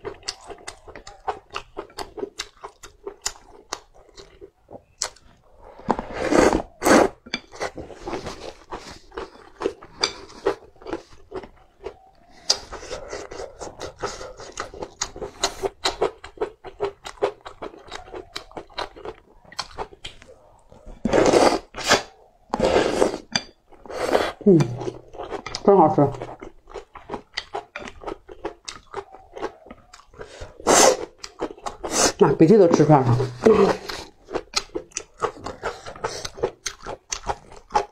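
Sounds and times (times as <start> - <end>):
wet chewing: 0.0 - 37.9
person slurping noodles: 5.6 - 9.1, 21.0 - 25.0, 30.2 - 31.1, 31.7 - 32.3.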